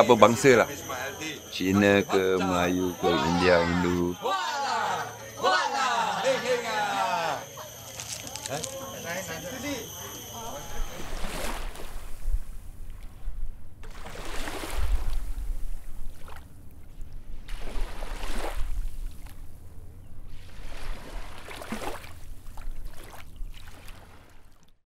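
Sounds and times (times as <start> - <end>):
rushing water swells: 13.8 - 15.5.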